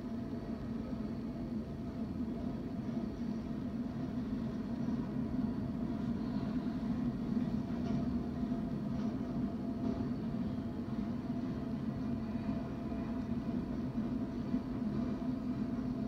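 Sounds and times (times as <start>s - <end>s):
train rumbling on tracks: 0.0s - 16.0s.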